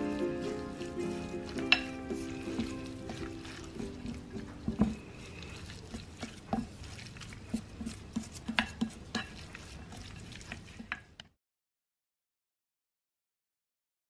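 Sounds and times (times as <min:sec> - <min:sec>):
spoons rustling dry mixture: 0:00.0 - 0:11.2.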